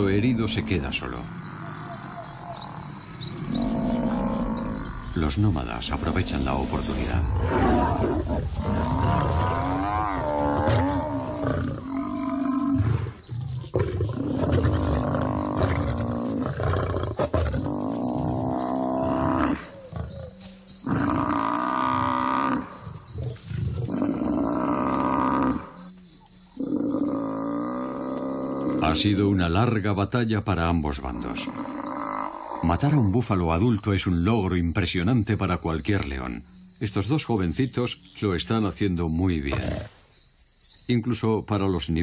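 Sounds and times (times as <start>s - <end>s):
lions growling and snarling: 0.0s - 26.0s, 26.6s - 29.8s, 39.4s - 40.0s.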